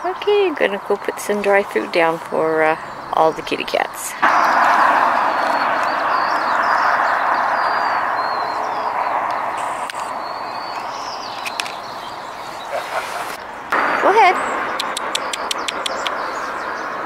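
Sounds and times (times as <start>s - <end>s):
passing vehicle hiss: 1.7s - 11.2s, 11.9s - 15.1s
faint high bird chirps: 5.2s - 17.0s.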